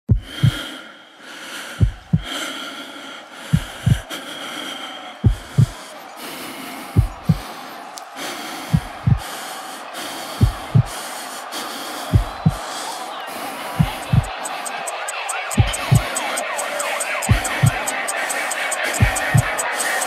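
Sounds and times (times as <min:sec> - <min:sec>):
heartbeat thumps: 0:00.1 - 0:00.6, 0:01.8 - 0:02.3, 0:03.5 - 0:04.1, 0:05.2 - 0:05.8, 0:07.0 - 0:07.4, 0:08.7 - 0:09.2, 0:10.4 - 0:11.0, 0:12.1 - 0:12.7, 0:13.8 - 0:18.0, 0:18.8 - 0:19.6.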